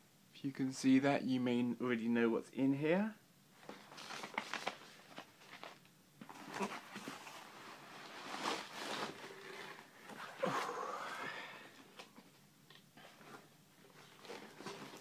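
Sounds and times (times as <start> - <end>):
foam sheet rustling and scraping: 6.3 - 10.3.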